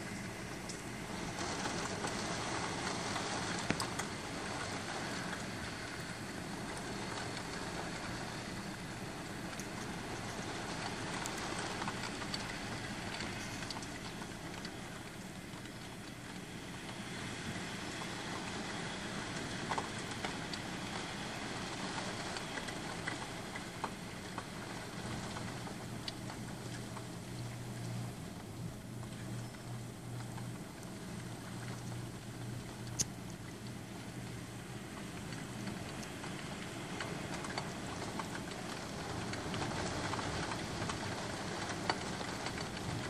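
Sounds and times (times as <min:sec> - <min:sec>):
heavy rain on pavement: 0:00.0 - 0:43.0
low steady hum: 0:00.0 - 0:43.0
drip ticks: 0:32.8 - 0:33.8.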